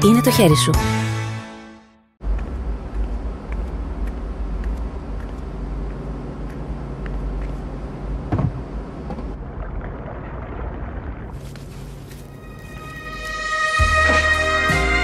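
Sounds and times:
low steady rumble: 2.2s - 13.2s.

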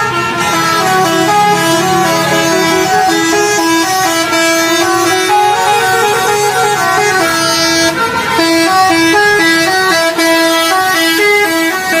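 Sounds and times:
bus air horn playing a melody: 0.0s - 12.0s.

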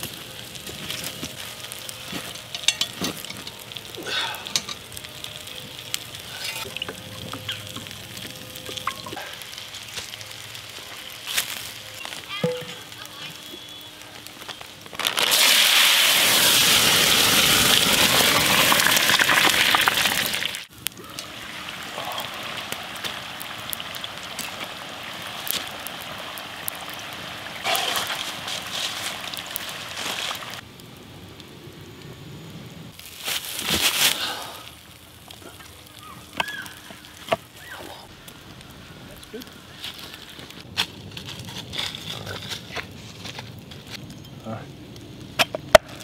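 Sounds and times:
fries sizzling in hot oil: 0.0s - 30.6s.

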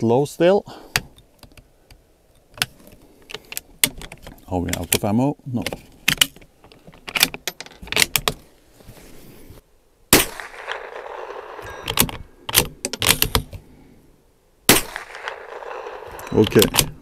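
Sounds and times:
rifle loading clicks: 5.7s - 8.4s, 11.5s - 13.6s, 15.2s - 17.0s
rifle shot: 10.1s - 12.0s, 14.7s - 17.0s.

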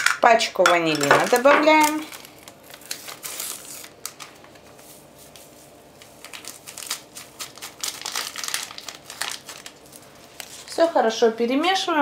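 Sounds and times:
paper sachet rustling: 1.2s - 10.9s.

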